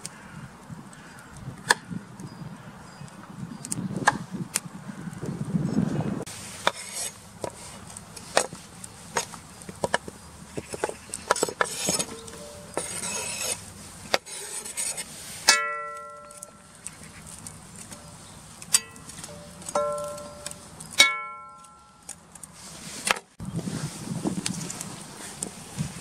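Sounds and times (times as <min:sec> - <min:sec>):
sharp ringing strike: 0:15.5 - 0:16.6, 0:18.8 - 0:22.0.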